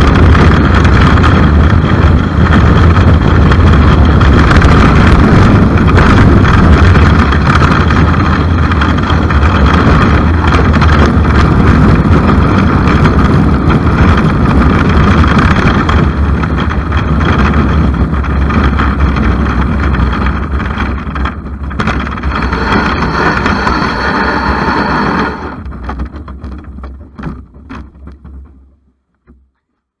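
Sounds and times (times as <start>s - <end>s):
sled runners scraping on ice: 21.8s - 26.0s.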